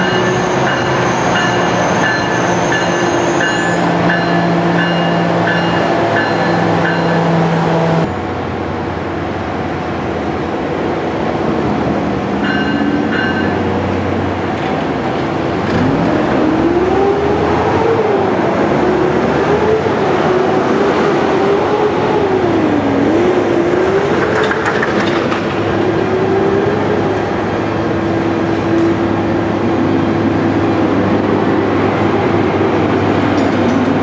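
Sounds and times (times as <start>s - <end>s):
locomotive whine: 0.0s - 34.0s
train engine and wheels rumbling: 0.0s - 34.0s.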